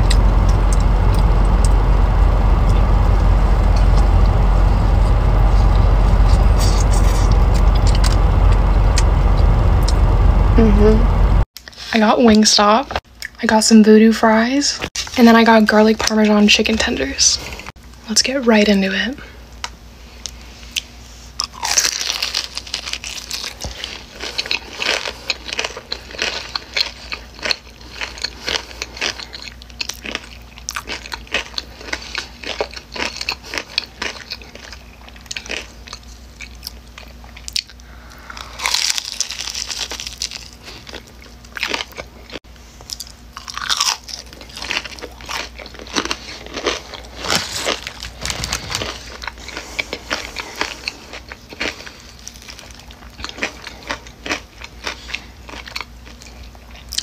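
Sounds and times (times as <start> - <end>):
wet chewing: 20.8 - 57.0
crunchy bites: 21.4 - 56.3.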